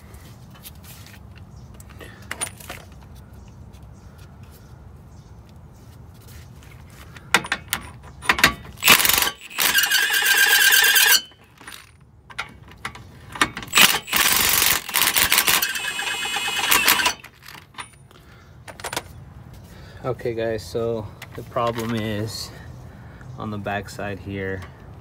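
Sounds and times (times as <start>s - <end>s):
impact wrench hammering: 8.3s - 11.5s, 13.4s - 17.2s.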